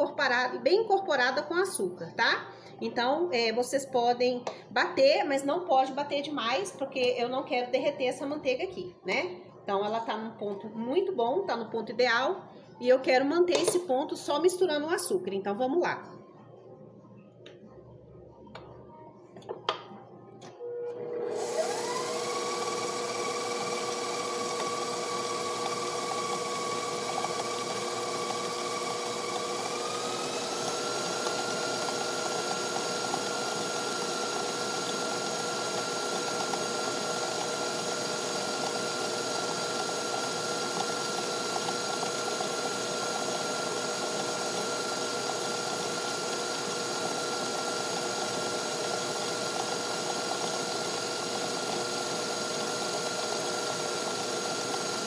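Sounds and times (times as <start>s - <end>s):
stand mixer motor whine: 20.6s - 55.0s
beater creaming butter in steel bowl: 20.9s - 55.0s.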